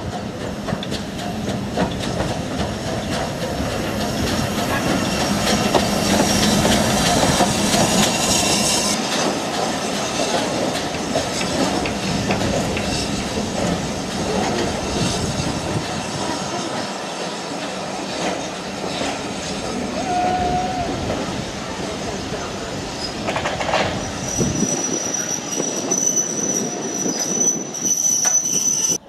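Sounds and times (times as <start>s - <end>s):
wheels clicking over rail joints: 0.0s - 8.1s, 9.0s - 14.8s, 23.0s - 24.0s
steam train rumbling: 0.0s - 29.0s
steam hissing: 0.1s - 27.8s.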